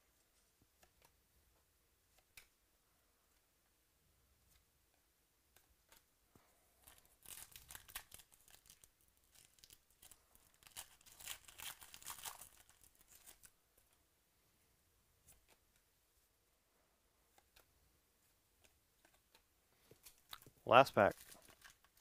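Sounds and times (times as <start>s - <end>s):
foil wrapper crinkling and tearing: 6.8s - 13.5s, 21.2s - 22.0s.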